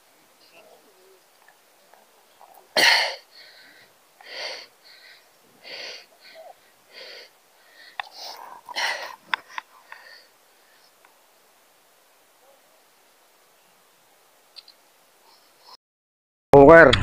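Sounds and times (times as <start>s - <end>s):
soft wheezing breaths: 0.0s - 11.4s, 15.1s - 15.8s
loud burst of breath: 2.8s - 10.9s.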